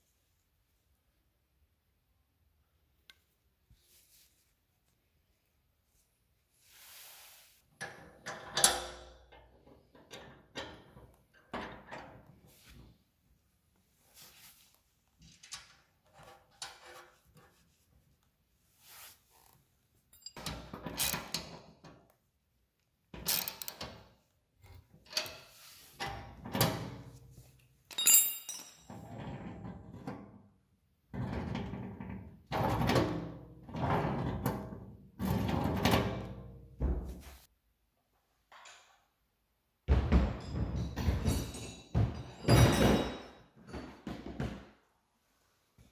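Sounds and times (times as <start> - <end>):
metal parts clinking and rattling: 27.9 - 29.0.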